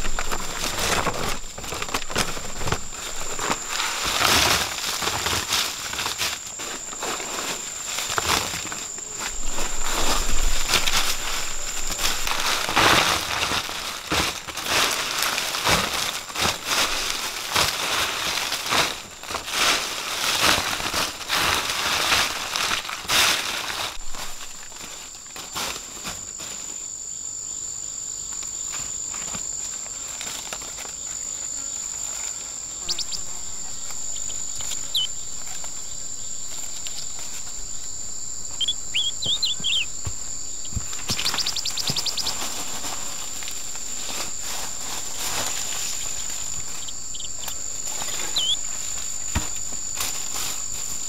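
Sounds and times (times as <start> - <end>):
insects droning: 0.0 - 51.0.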